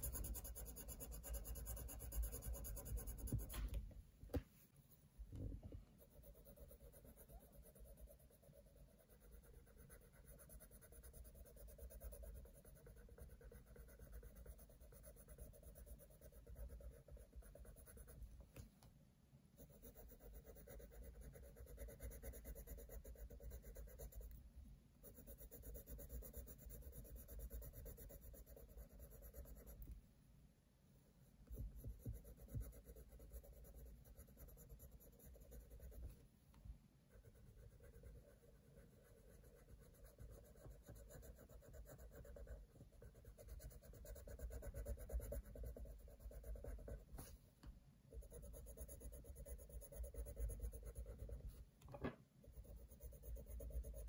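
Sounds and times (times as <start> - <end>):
pencil scratching on paper: 0.0 - 3.8, 5.9 - 18.4, 19.6 - 24.4, 25.0 - 30.0, 31.3 - 36.2, 37.1 - 47.5, 48.1 - 51.7, 52.4 - 54.0.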